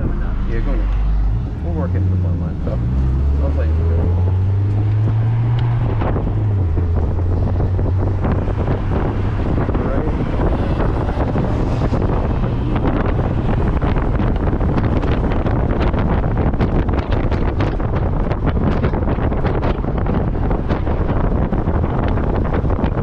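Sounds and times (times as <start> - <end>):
car engine drone: 0.0 - 23.0
wind buffeting microphone: 0.0 - 23.0.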